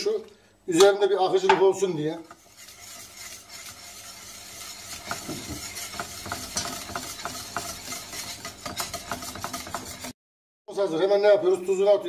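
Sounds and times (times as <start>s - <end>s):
whisk swishing sauce: 1.9s - 10.2s
whisk wires clicking against pot: 2.2s - 10.1s.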